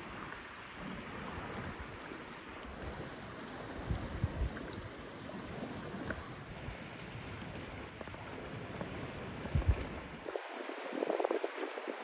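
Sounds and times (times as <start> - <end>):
mountain river rushing: 10.1 - 12.0.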